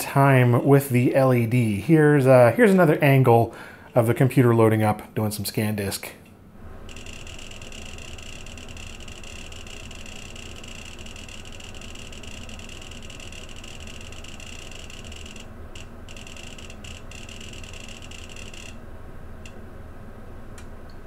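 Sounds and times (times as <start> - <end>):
steady low hum: 0.0 - 21.0
rapid hard disk clicking: 6.8 - 18.8.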